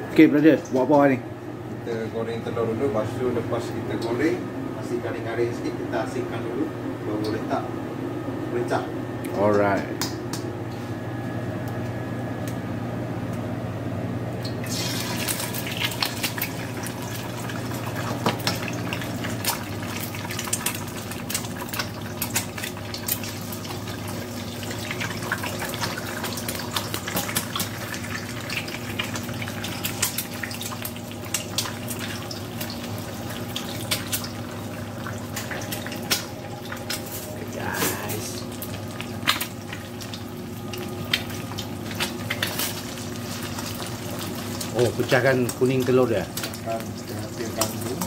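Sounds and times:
steady low hum: 0.0s - 48.0s
eggs sizzling in hot oil: 14.5s - 48.0s.

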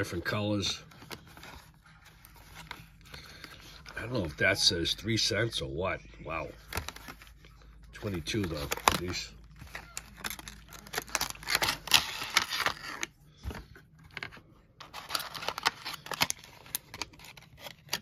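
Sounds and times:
plastic packaging crinkling: 6.5s - 13.1s, 14.0s - 18.0s.

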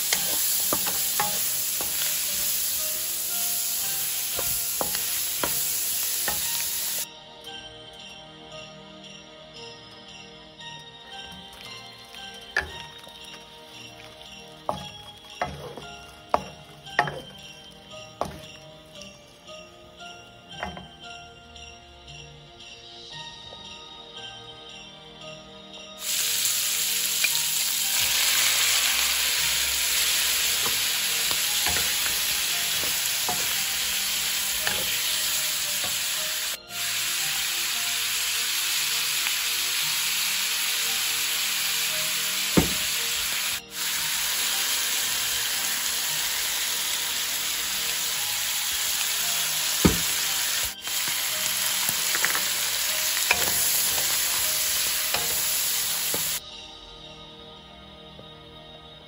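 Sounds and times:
food sizzling in a wok: 0.0s - 7.1s, 11.2s - 19.6s, 20.6s - 20.9s, 26.0s - 56.4s.

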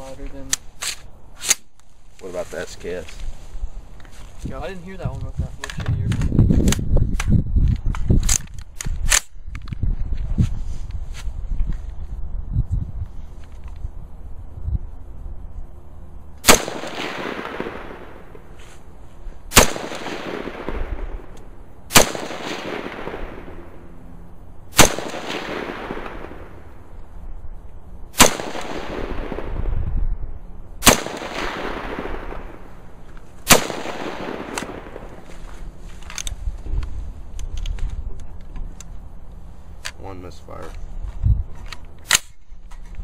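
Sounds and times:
rifle shots echoing: 16.4s - 18.6s, 19.5s - 24.0s, 24.7s - 26.9s, 28.1s - 29.7s, 30.8s - 35.4s.

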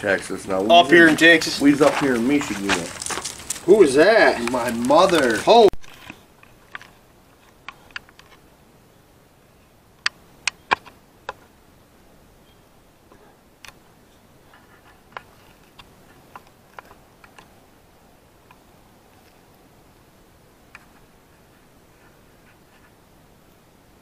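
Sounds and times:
sharp clicks and ticks: 4.3s - 6.9s.

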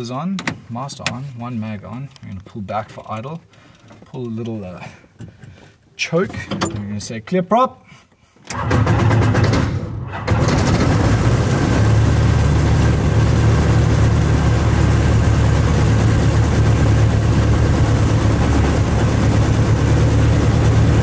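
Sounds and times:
starter cranking engine: 8.5s - 12.1s
aircraft engine idling: 10.8s - 21.0s.

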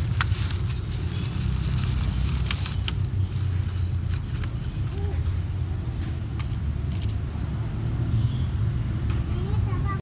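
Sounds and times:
plastic bag crinkling: 0.0s - 4.6s.

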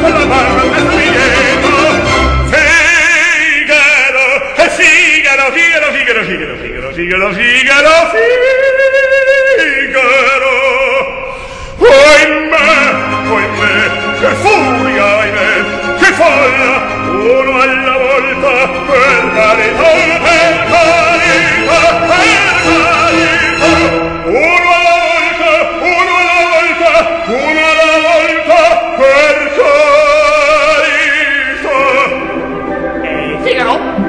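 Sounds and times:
instrumental accompaniment: 0.0s - 3.6s, 12.6s - 28.9s, 29.6s - 34.0s
man singing opera: 0.0s - 34.0s.

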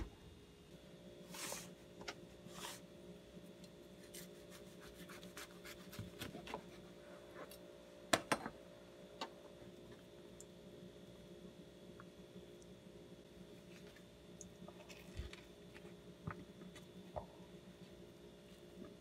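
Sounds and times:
knife sawing through sandwich: 4.0s - 6.3s.

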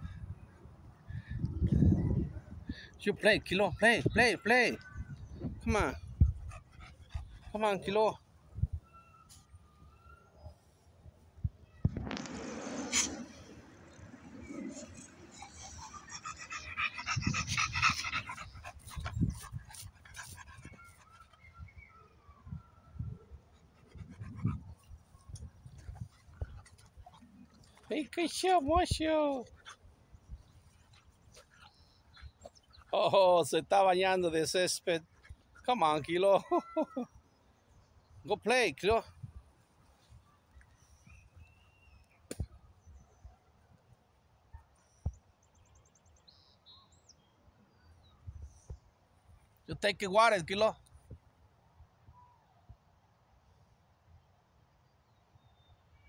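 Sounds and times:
dog panting rapidly: 6.2s - 7.6s, 15.3s - 21.2s.

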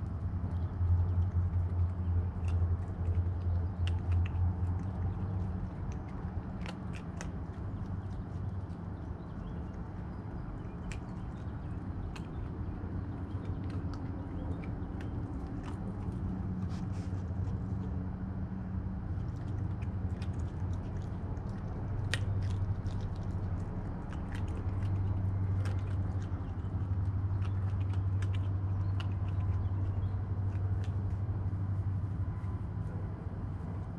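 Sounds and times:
raccoon crunching kibble: 0.0s - 32.6s
steady low hum: 0.0s - 33.9s.

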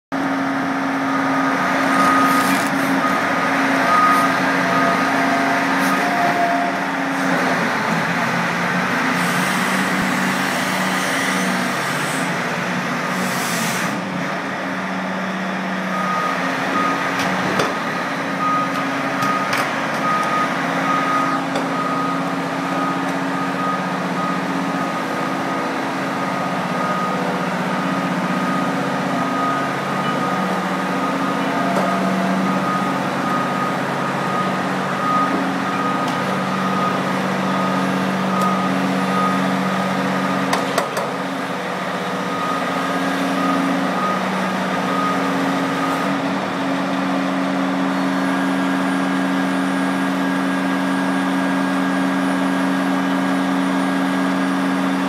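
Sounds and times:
diesel engines running: 0.1s - 55.0s
high-pitched warning alarm beeping: 1.2s - 6.9s, 18.4s - 25.5s, 26.3s - 40.6s.

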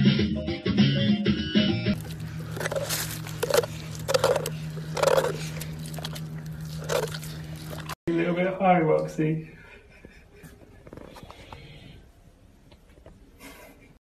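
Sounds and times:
dog lapping water: 2.0s - 8.0s.

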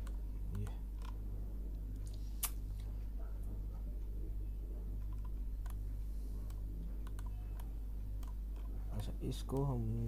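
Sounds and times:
low electrical hum: 0.0s - 10.0s
mouse and keyboard clicks: 6.5s - 8.7s.

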